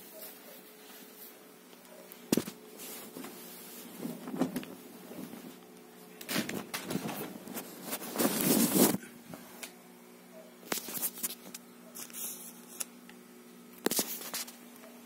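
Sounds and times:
faint steady hum: 0.0s - 15.0s
rustling and bumping: 2.3s - 5.6s, 6.3s - 9.0s.

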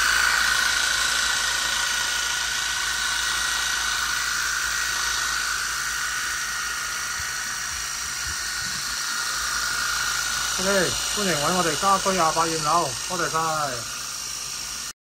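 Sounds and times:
pressure washer whining: 0.0s - 15.0s
water jet hissing on glass: 4.8s - 14.9s.

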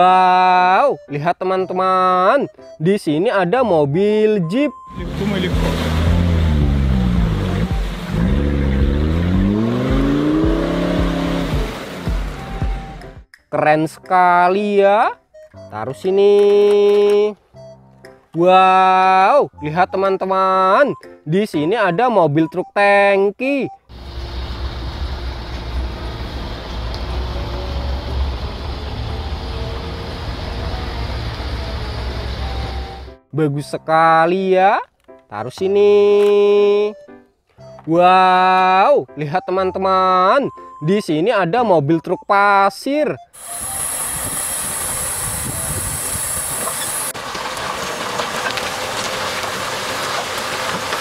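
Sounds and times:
truck diesel engines rumbling: 4.5s - 13.2s, 23.7s - 33.2s, 43.2s - 51.0s
traffic noise: 4.6s - 13.2s, 23.8s - 33.1s, 43.3s - 51.0s
soil and stones sliding: 5.0s - 12.1s, 43.4s - 51.0s
strong high hiss: 43.4s - 47.2s.

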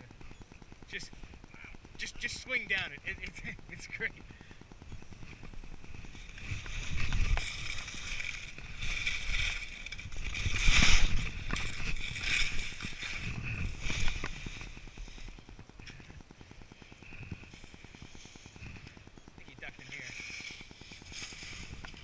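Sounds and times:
wind rumbling on microphone: 4.9s - 15.3s
skis scraping over snow: 5.3s - 15.3s, 19.6s - 22.0s.

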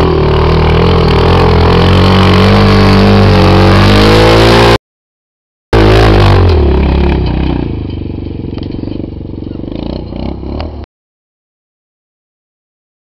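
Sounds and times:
quad engine revving: 0.0s - 4.8s, 5.8s - 10.9s.

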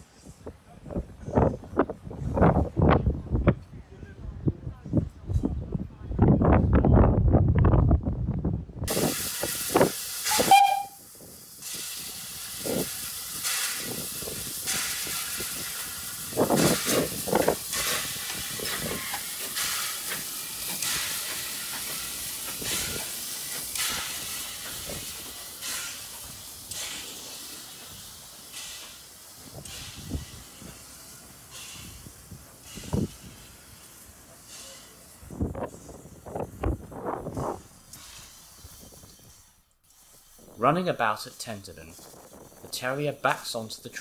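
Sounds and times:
steam locomotive hissing: 8.9s - 36.6s, 37.3s - 44.0s
steam puffs: 8.9s - 42.7s
short whistle-like note: 10.3s - 11.0s.

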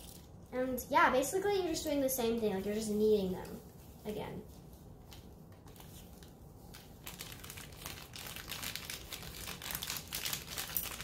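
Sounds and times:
plastic packet crinkling: 0.0s - 0.4s, 5.1s - 11.0s.

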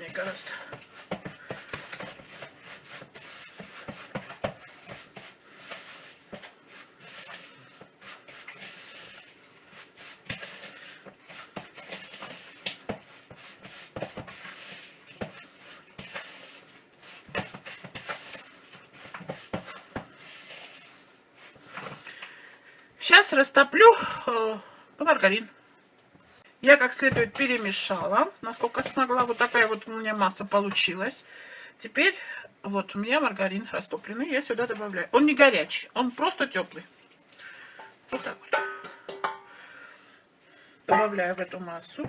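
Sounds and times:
wooden spoon scraping bowl: 0.0s - 21.8s, 26.8s - 30.9s
spoon knocking against bowl: 38.5s - 39.4s.

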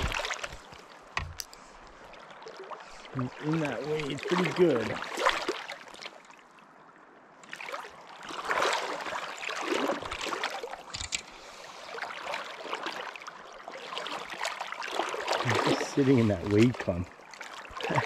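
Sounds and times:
small knocks: 0.0s - 1.6s
river water splashing: 0.0s - 18.0s.

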